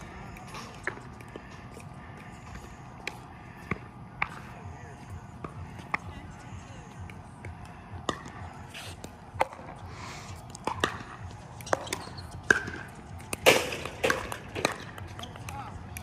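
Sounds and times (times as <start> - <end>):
paddles hitting plastic ball: 10.4 - 16.0.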